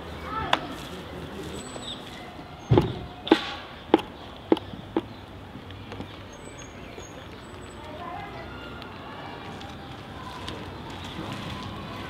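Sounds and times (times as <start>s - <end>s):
sharp knocks: 2.7s - 5.1s.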